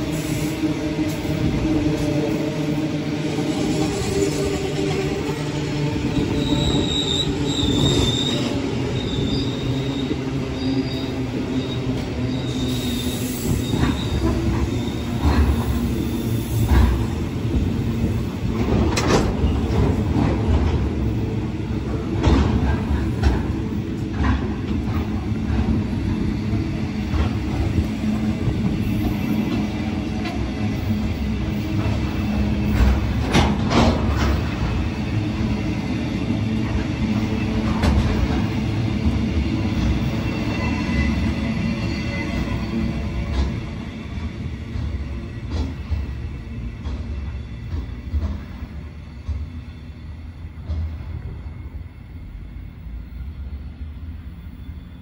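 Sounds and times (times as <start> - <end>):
train wagons rumbling past: 0.0 - 55.0
high wheel squeal: 6.3 - 15.2, 39.9 - 43.1, 54.2 - 55.0.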